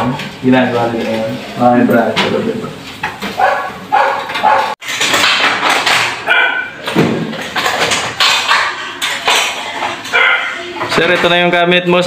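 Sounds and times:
dog barking: 3.4s - 4.8s, 6.2s - 6.8s, 10.1s - 10.6s.

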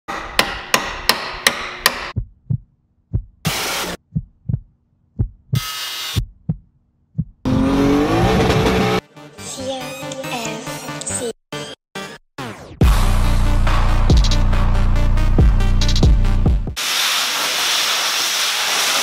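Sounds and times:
hammer strikes on steel: 0.1s - 2.2s
low heartbeat thumps: 2.1s - 5.6s, 6.2s - 7.5s
car engine sliding pitch: 7.5s - 9.0s
bursts of hiss: 16.8s - 19.0s.

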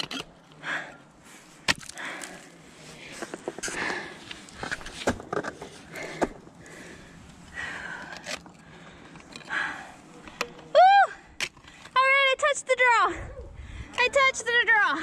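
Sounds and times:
person breathing hard: 0.6s - 4.5s, 5.8s - 10.5s
ice axes striking ice: 1.6s - 2.4s.

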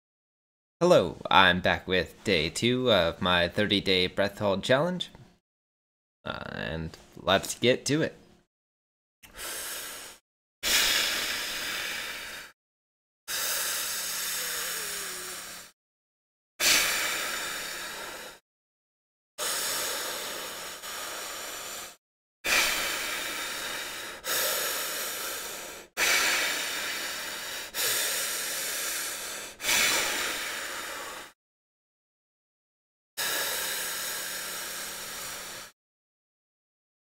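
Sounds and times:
man breathing deeply: 9.2s - 12.6s, 13.3s - 15.8s, 16.6s - 18.4s, 19.4s - 31.4s, 33.2s - 35.8s.

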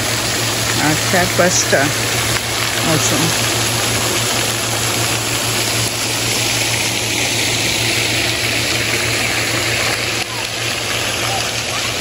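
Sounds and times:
fountain water splashing onto pond: 0.0s - 12.0s.

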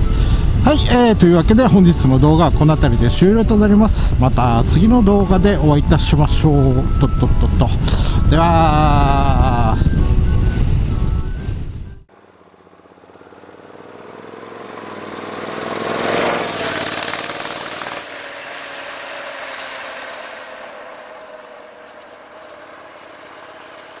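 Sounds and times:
motorcycle passing by: 12.1s - 24.0s.

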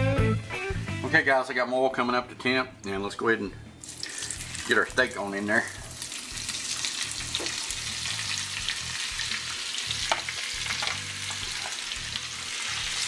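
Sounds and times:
steak sizzling in hot oil: 3.8s - 13.0s.

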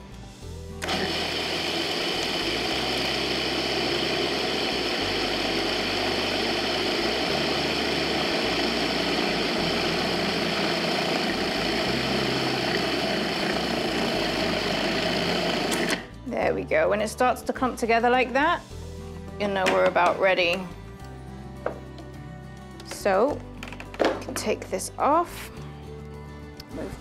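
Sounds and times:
food processor motor running: 0.8s - 16.1s.

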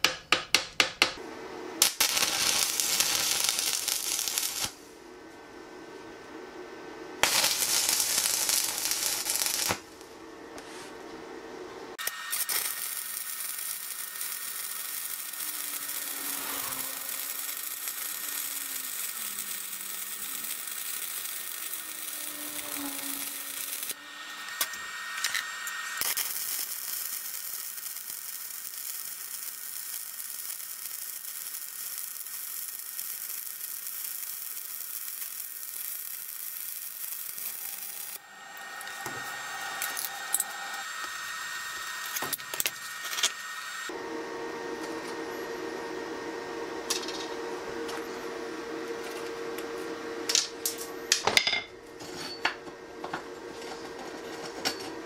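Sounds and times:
arc welding crackling sizzle: 1.2s - 5.0s, 7.2s - 11.0s, 11.9s - 46.0s.

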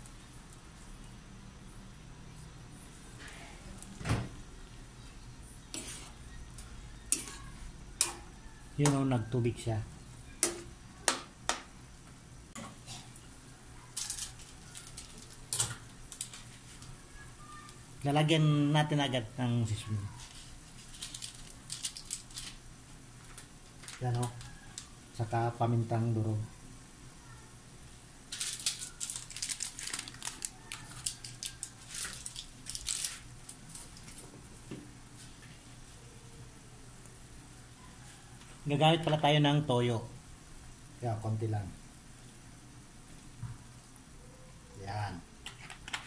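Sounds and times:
pepper crinkling and crackling: 5.6s - 11.6s, 12.5s - 26.4s, 27.8s - 37.3s, 44.8s - 46.0s
food simmering in a pan: 41.7s - 46.0s.

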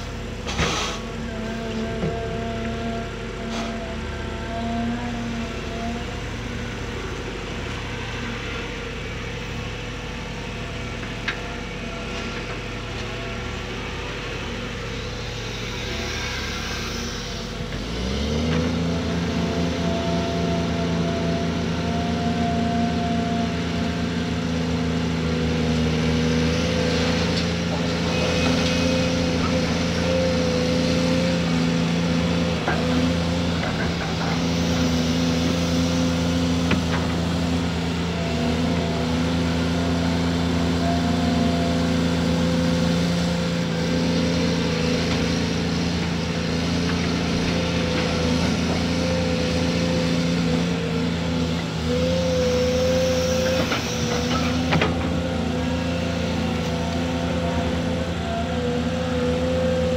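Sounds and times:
heavy diesel engines running: 0.0s - 59.9s
engine revving up: 15.8s - 19.8s.

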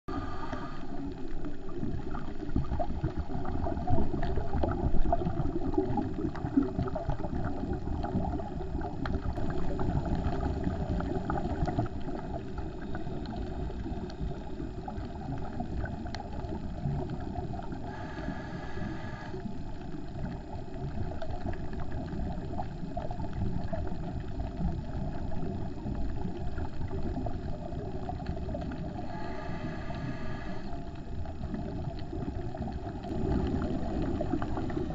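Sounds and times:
underwater low rumble: 0.1s - 34.9s
crackling clicks: 4.1s - 29.0s.

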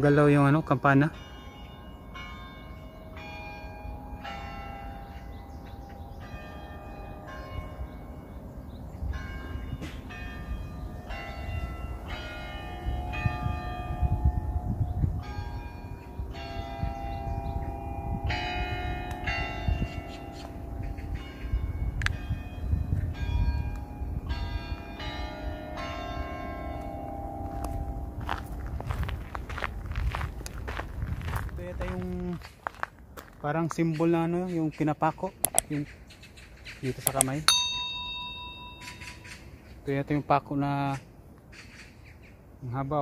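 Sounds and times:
church bells chiming a tune: 0.0s - 30.8s, 37.5s - 39.4s.

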